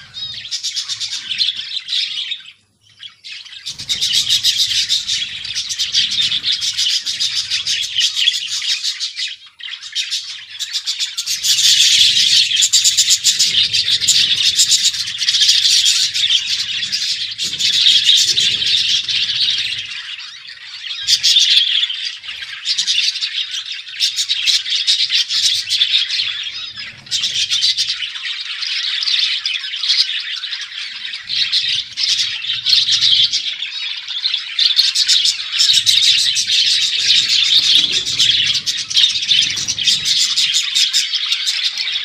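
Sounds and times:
budgerigars chattering and chirping: 0:00.0 - 0:42.0.

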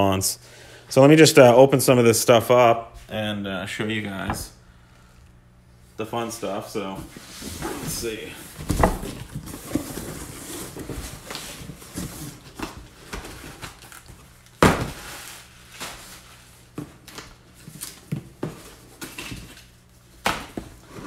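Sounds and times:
cardboard rustling and scraping: 0:06.8 - 0:14.2.

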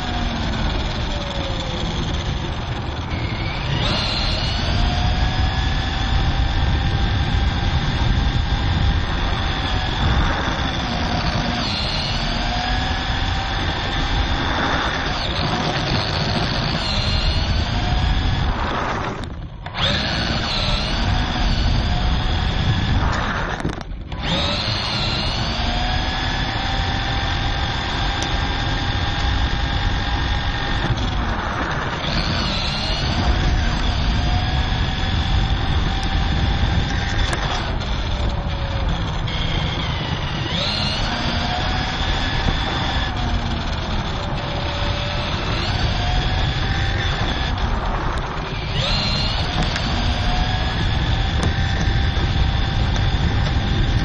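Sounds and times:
rc car motor whining: 0:00.0 - 0:54.0
tyres rumbling on asphalt: 0:00.0 - 0:54.0.

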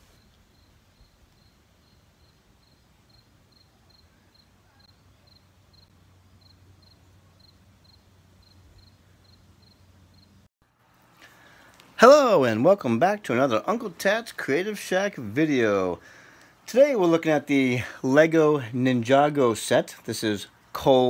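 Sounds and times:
cricket chirps: 0:00.0 - 0:10.5.

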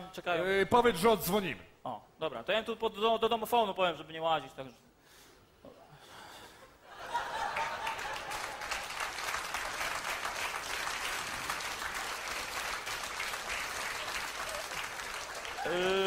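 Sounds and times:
audience applauding: 0:07.1 - 0:16.0.

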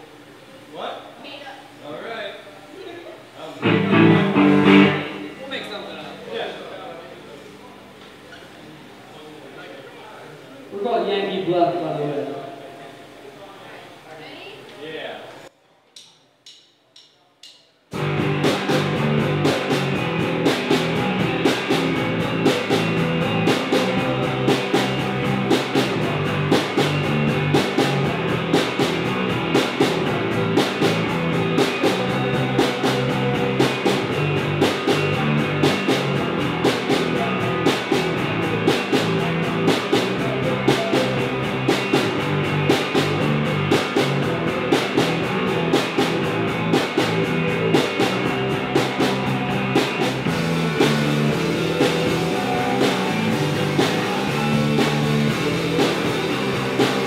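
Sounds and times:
drum kit beat: 0:03.6 - 0:05.4, 0:16.0 - 0:57.0
electric guitars: 0:03.6 - 0:05.4, 0:18.0 - 0:57.0.

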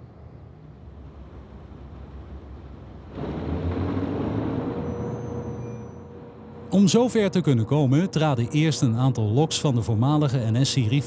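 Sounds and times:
locomotive diesel engines rumbling: 0:00.5 - 0:11.0.

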